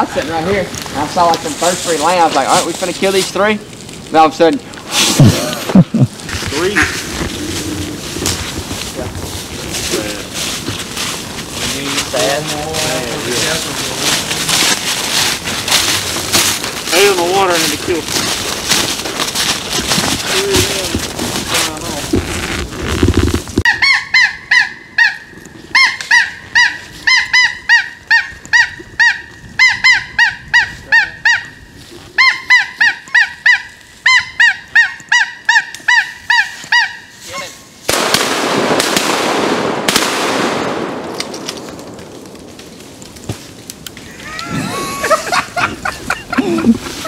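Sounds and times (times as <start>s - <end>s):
goose honking: 6.5s - 8.1s.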